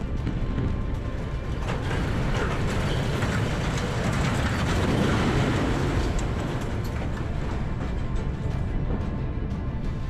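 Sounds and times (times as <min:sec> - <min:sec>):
steel structure collapsing: 0:01.0 - 0:09.0.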